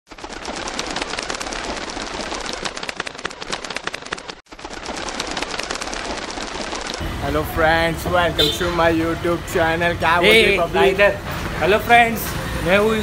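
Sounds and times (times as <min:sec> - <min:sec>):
pigeon wingbeats clattering: 0:00.1 - 0:07.0.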